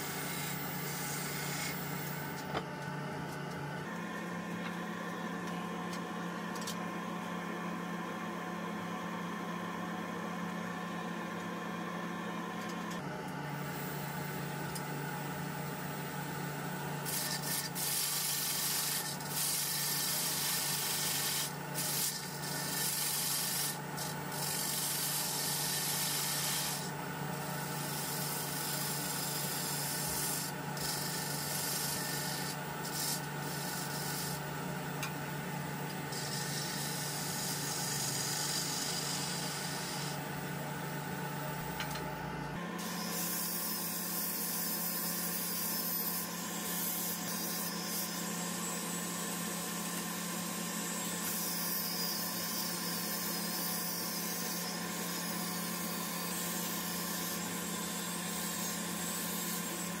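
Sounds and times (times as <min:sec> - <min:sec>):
wood lathe hum: 0:00.0 - 1:00.0
sandpaper rubbing spinning bowl: 0:17.0 - 0:26.9, 0:27.7 - 0:34.4, 0:36.1 - 0:40.2
angle grinder sanding: 0:17.0 - 0:34.5, 0:35.9 - 0:40.3, 0:42.8 - 0:50.0, 0:50.9 - 1:00.0.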